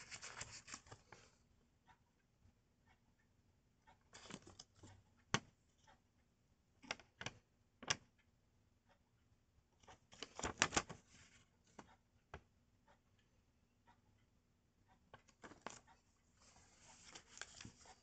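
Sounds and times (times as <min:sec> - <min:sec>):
paper card rustling: 0:00.0 - 0:01.3, 0:16.4 - 0:18.0
paper clicks: 0:00.0 - 0:01.3, 0:10.1 - 0:11.1, 0:16.8 - 0:18.0.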